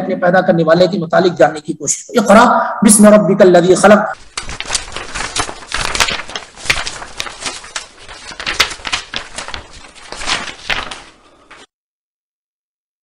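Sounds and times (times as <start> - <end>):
sharp clicks and rustles: 4.2 - 11.7.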